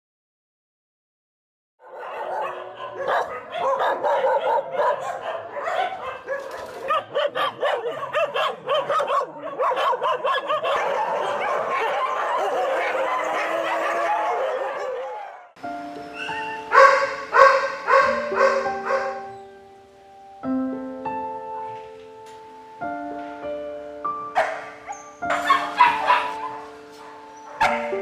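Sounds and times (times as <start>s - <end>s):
dogs barking: 1.8s - 19.6s, 24.2s - 28.0s
dogs howling: 1.8s - 19.6s, 24.4s - 28.0s.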